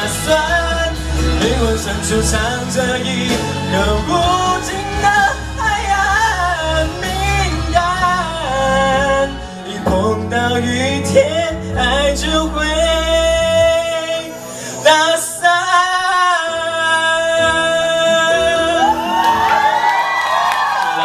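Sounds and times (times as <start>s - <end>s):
man singing pop ballad: 0.0s - 19.5s
karaoke backing track: 0.0s - 21.0s
audience cheering and whooping: 18.4s - 21.0s.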